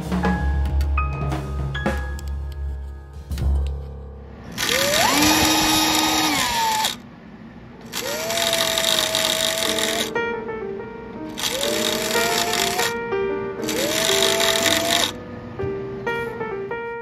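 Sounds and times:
handheld power tool motor whine: 0:04.6 - 0:07.0, 0:07.9 - 0:10.1, 0:11.4 - 0:13.0, 0:13.6 - 0:15.2.

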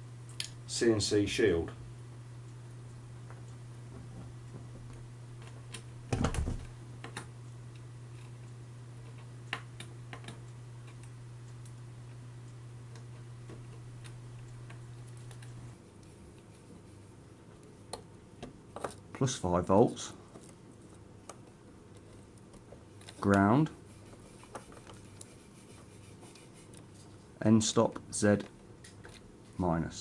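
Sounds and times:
steady low hum: 0:00.0 - 0:30.0
wire connectors clicking: 0:09.0 - 0:12.2.

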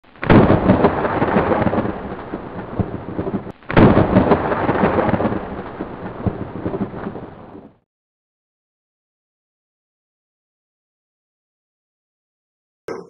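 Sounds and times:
thunder rumbling: 0:00.1 - 0:07.8
loud thunder crash: 0:00.2 - 0:07.8.

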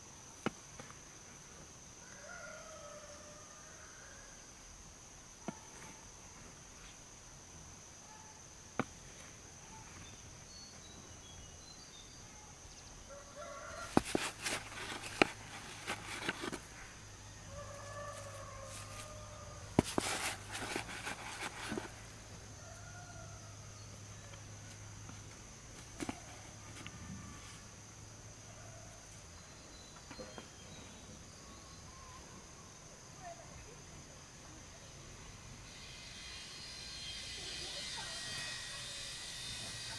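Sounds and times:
roosters crowing: 0:02.0 - 0:04.5, 0:13.0 - 0:24.8.

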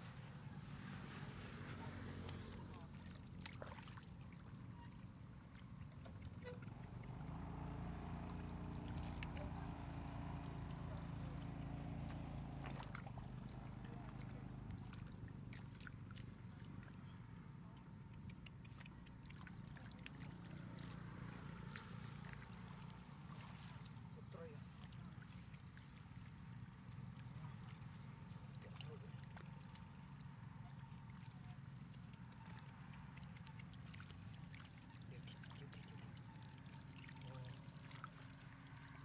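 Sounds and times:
wet clicks and splats in mud: 0:07.0 - 0:17.3, 0:18.1 - 0:23.1, 0:26.8 - 0:36.3.

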